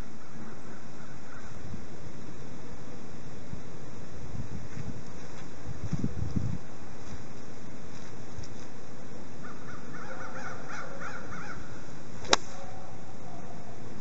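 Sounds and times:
bird calling: 0.0 - 1.6, 9.4 - 13.9
golf club striking ball: 12.2 - 12.6.

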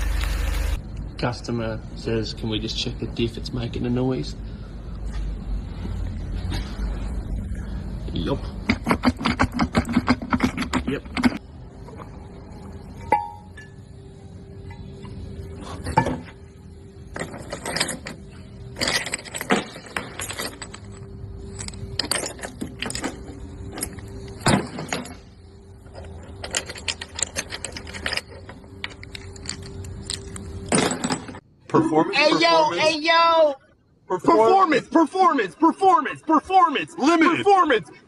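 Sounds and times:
faint steady hum: 11.3 - 34.8
metal gears clicking and clinking: 16.8 - 31.4.

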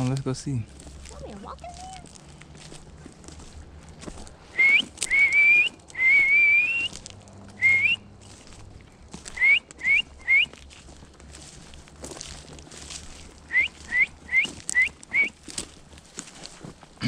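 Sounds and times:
person whistling: 4.5 - 6.9, 7.6 - 8.0, 9.4 - 10.5, 13.5 - 15.4.

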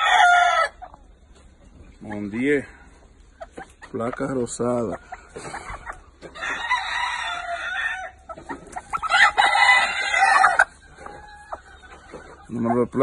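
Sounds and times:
rooster crowing: 0.0 - 0.8, 6.4 - 8.2, 9.0 - 10.7.

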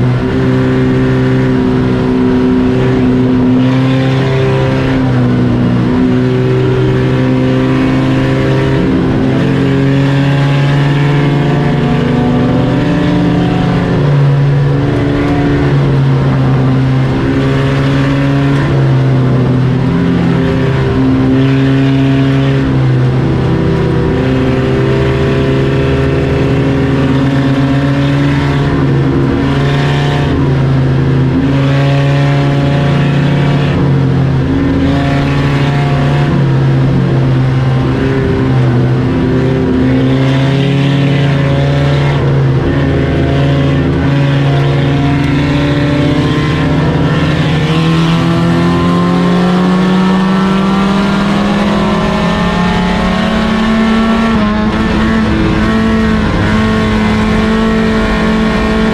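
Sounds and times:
race car engines revving: 0.0 - 58.9.

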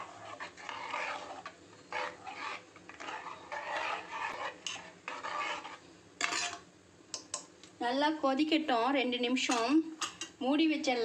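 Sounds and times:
ladle stirring and scraping pot: 0.0 - 7.5.

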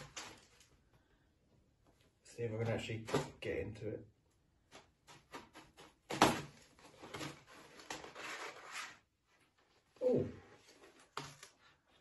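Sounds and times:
cardboard scraping and rustling: 5.0 - 10.0.

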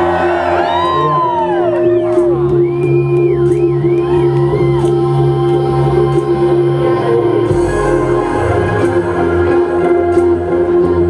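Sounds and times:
audience whooping: 0.0 - 5.0
electronic music: 0.0 - 11.0.

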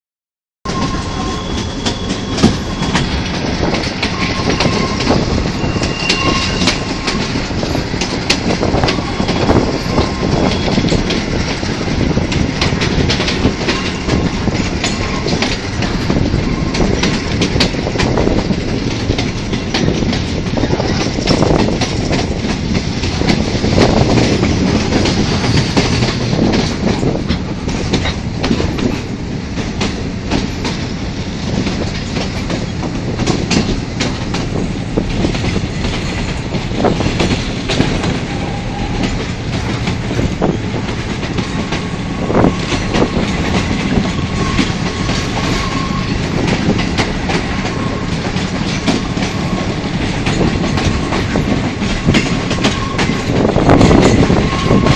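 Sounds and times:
faint wheel squeal: 0.7 - 3.2, 4.1 - 7.2, 44.1 - 46.2
train rumble: 0.7 - 54.9
wheels clattering over rail joints: 0.8 - 54.9.

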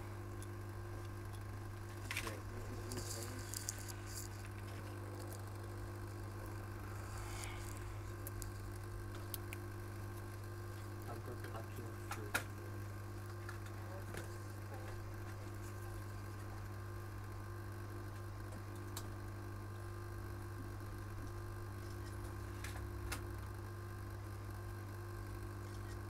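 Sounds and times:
hot-air station blowing hum: 0.0 - 26.0.

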